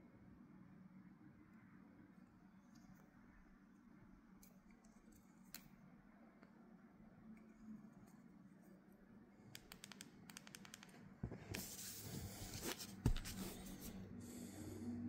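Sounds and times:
hand rubbing over paper: 11.5s - 14.0s.

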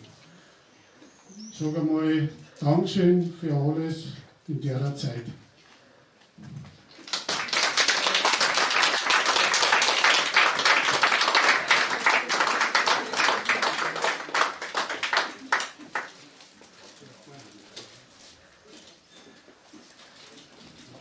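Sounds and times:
congregation applauding: 6.9s - 16.4s.

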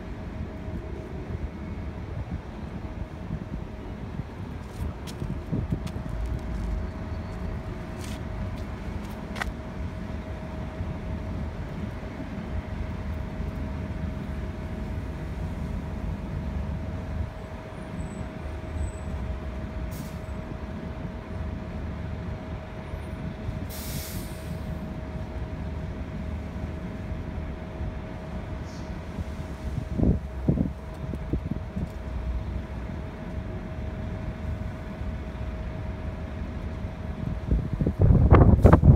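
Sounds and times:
bus engine rumbling: 0.0s - 38.9s
air brake hiss: 19.9s - 20.3s, 23.6s - 24.8s, 28.6s - 29.8s
short air hiss: 23.7s - 24.7s.

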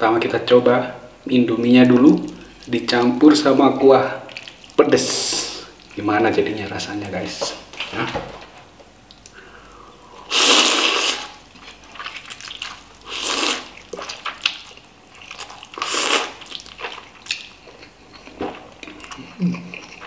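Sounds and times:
noodles being slurped: 10.2s - 17.5s.

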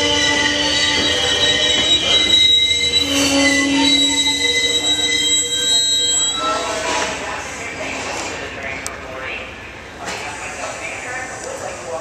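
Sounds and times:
train brakes squealing: 0.0s - 8.0s.

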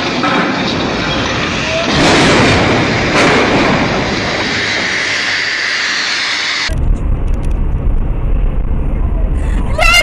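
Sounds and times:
loud rushing hiss: 0.0s - 6.9s.

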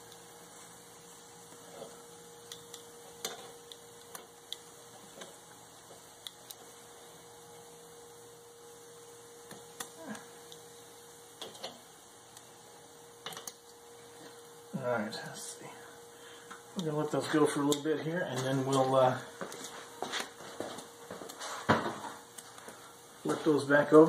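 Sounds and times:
steady hum: 0.0s - 24.0s
metal tongs clicking on grill grate: 2.4s - 5.4s, 6.2s - 6.6s, 11.4s - 12.5s, 13.2s - 13.8s.

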